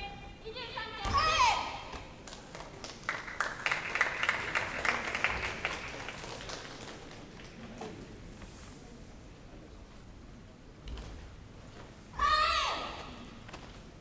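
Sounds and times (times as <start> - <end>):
spectators clapping: 2.2 - 7.7.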